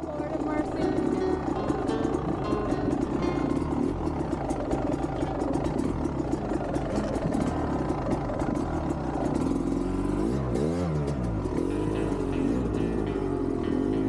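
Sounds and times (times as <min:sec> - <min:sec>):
sharp rattling clicks: 0:00.3 - 0:09.8
dirt bike engine revving: 0:00.8 - 0:14.0.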